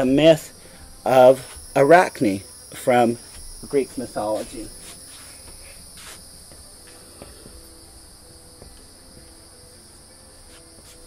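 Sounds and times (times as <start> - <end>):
insects chorus: 0.0 - 11.0.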